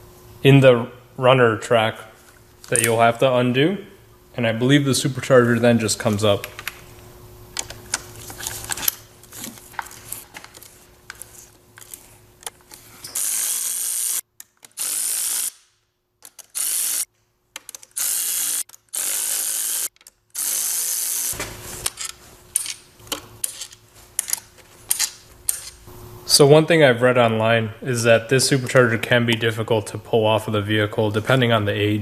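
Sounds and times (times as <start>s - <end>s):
cordless ratchet whirring: 13.0s - 15.6s, 16.2s - 17.1s, 17.7s - 22.0s.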